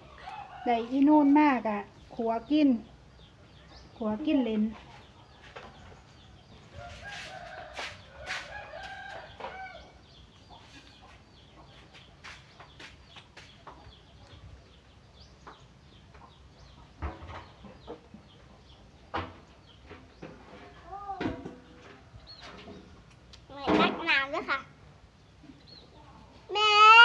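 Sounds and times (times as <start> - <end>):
rooster crowing: 6.8 - 10.0.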